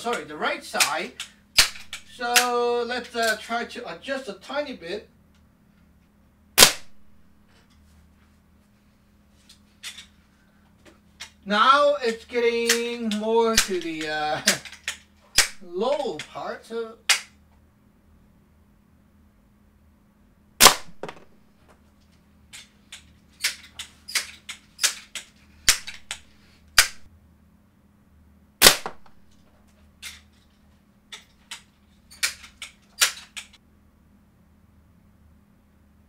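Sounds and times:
air pistol pumping and bolt clacks: 0.8 - 3.5, 9.5 - 10.2, 12.1 - 16.4, 22.0 - 27.1, 28.6 - 33.6
air pistol shots: 1.6 - 2.1, 6.6 - 7.0, 13.6 - 14.6, 15.4 - 15.6, 20.6 - 21.4, 25.7 - 26.2, 26.8 - 27.1, 28.6 - 29.3.

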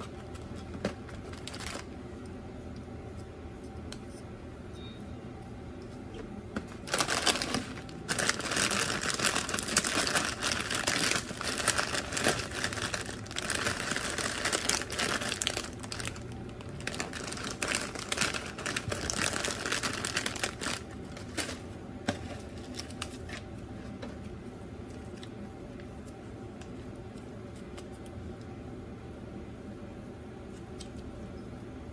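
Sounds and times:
foil snack bag crinkling: 0.0 - 1.9, 6.7 - 23.4.

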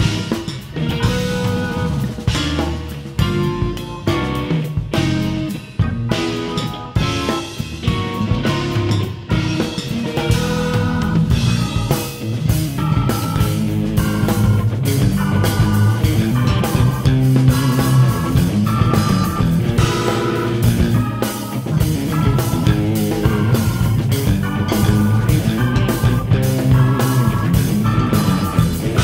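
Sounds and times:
jazz fusion band playing: 0.0 - 29.0.

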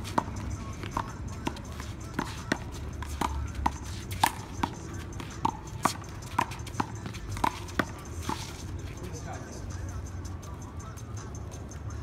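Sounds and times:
handball smacking: 0.1 - 8.4.

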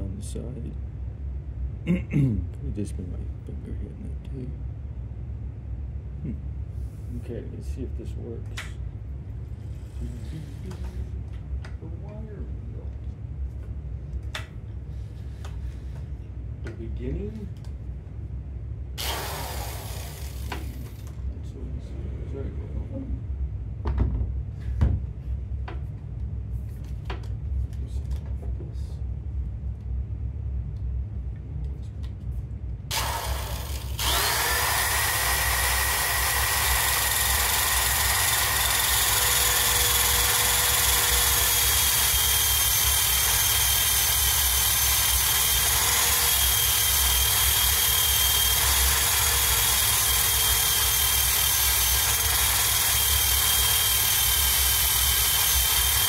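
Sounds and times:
wire wheel power tool whining: 19.0 - 21.1, 32.9 - 56.0.

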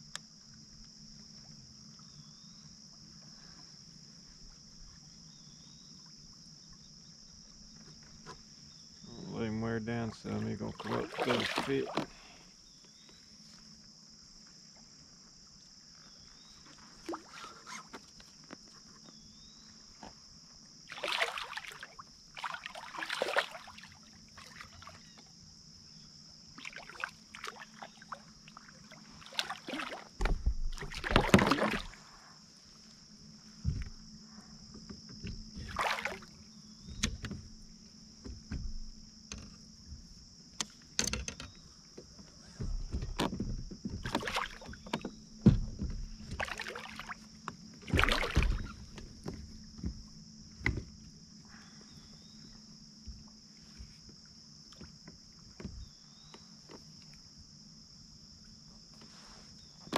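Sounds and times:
high insect drone: 0.0 - 59.9
water splashing: 10.2 - 12.3, 20.9 - 25.0, 26.6 - 32.0, 35.5 - 36.4, 43.9 - 45.1, 46.2 - 49.9.

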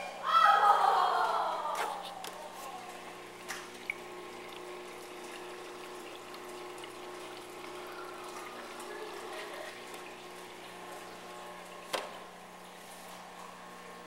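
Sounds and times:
aquarium pump humming: 0.0 - 14.0
water trickling: 2.7 - 13.8.

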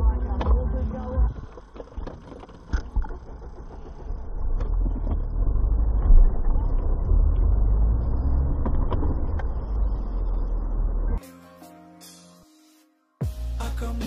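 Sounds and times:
car engine and tyre rumble: 0.0 - 11.2.

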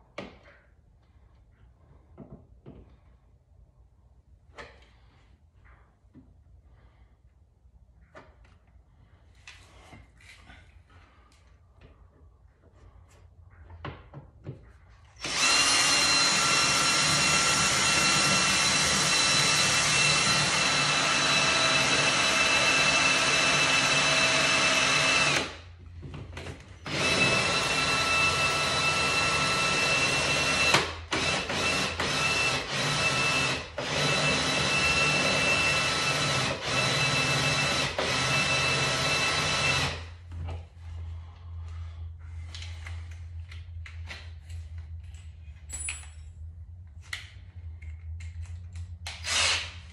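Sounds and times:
cordless drill whining: 15.2 - 25.6, 26.8 - 40.2, 49.2 - 49.8.

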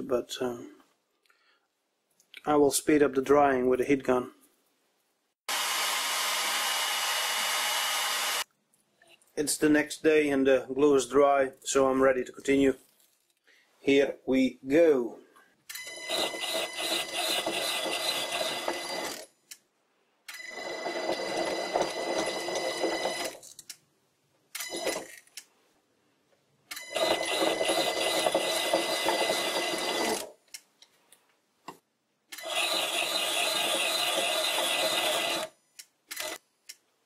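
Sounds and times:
lathe whine: 20.5 - 23.3
lathe tool scraping wood: 20.6 - 23.3, 27.0 - 30.3.

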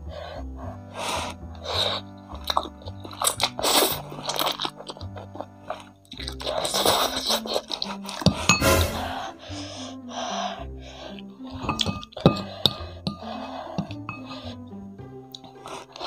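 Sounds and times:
background music with bass line: 0.0 - 7.1, 8.2 - 16.0
slurping and chewing noodles: 0.9 - 8.6, 10.9 - 14.6, 15.3 - 16.0.

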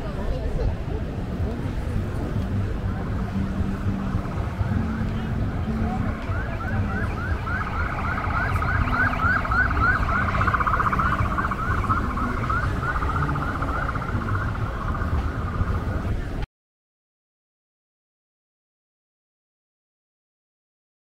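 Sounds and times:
street traffic rumble: 0.0 - 16.5
siren yelping: 5.7 - 16.0.

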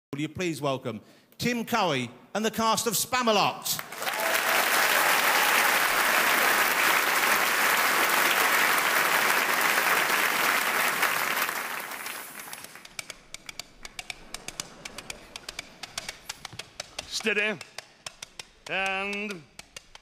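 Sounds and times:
audience applauding: 3.8 - 12.8
coconut halves clip-clopping: 12.8 - 20.0.

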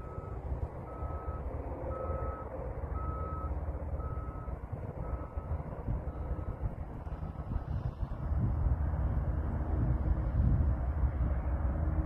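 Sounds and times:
reversing alarm beeping: 0.0 - 6.7
low rumbling noise: 0.0 - 12.0.

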